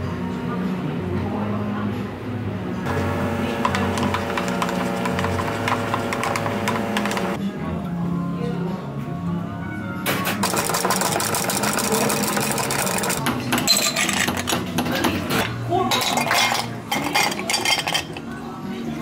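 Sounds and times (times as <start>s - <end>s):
ice cubes clinking into glass: 15.9s - 18.2s.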